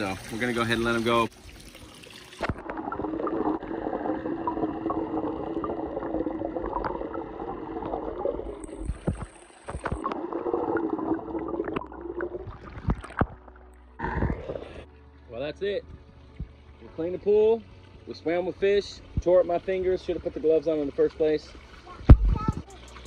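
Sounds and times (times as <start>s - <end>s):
muffled underwater gurgling: 14.0s - 14.8s.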